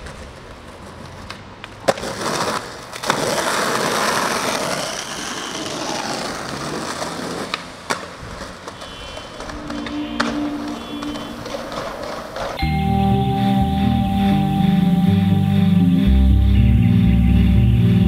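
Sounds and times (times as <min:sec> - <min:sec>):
skateboard clacking on ground: 0:00.0 - 0:12.6
skateboard wheels rolling: 0:00.0 - 0:12.6.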